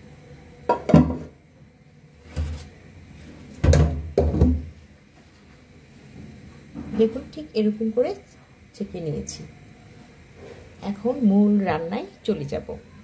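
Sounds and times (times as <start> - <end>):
colander knocking dull thuds: 0.7 - 1.3, 3.6 - 4.7.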